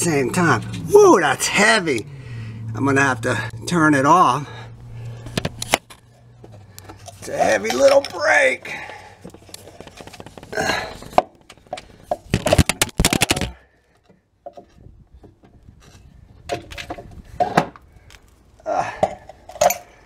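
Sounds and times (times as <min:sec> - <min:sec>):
metal clicks knocks and clatter: 0:09.2 - 0:13.5.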